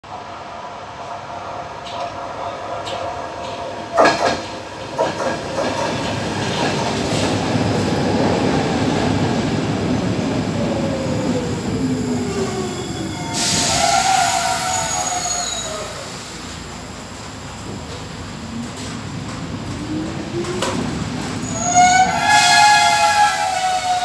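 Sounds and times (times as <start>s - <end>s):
train wheels rumbling on track: 0.1s - 24.0s
loud air hiss: 13.1s - 16.5s.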